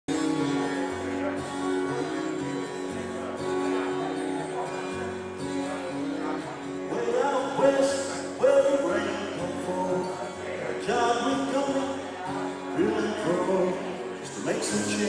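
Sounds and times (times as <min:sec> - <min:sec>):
acoustic guitar music: 0:00.1 - 0:15.0
person singing: 0:06.9 - 0:15.0.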